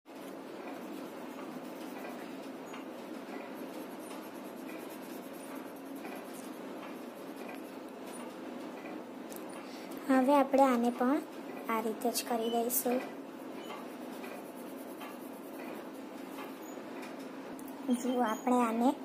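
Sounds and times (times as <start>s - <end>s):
pencil scratching on paper: 0.6s - 2.6s, 3.2s - 7.8s, 12.3s - 16.7s.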